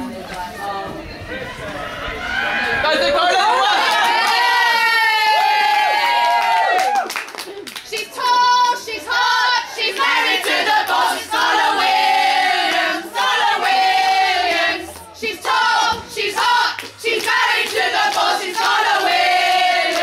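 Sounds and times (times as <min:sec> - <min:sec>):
women singing a football chant: 0:07.9 - 0:20.0.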